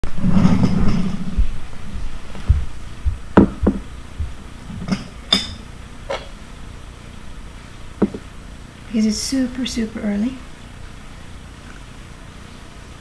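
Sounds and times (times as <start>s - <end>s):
dishes rustling: 0.2s - 6.4s, 8.0s - 8.3s
dishes knocking on wooden table: 2.5s - 6.3s, 8.0s - 8.3s
ringing ceramic clink: 5.3s - 5.6s.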